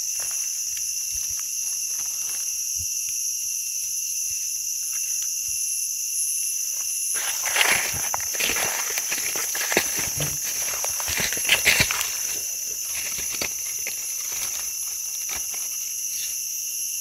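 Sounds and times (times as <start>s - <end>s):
insects calling: 0.0s - 17.0s
footsteps crunching dry leaves: 6.8s - 16.1s.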